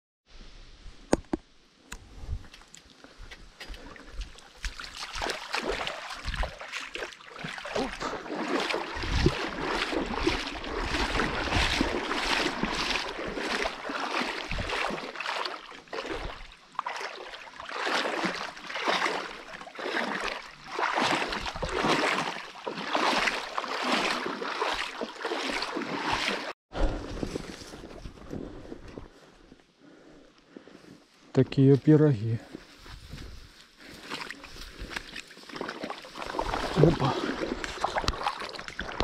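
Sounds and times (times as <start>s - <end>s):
footsteps rustling through vegetation: 2.4s - 20.1s, 30.6s - 38.4s.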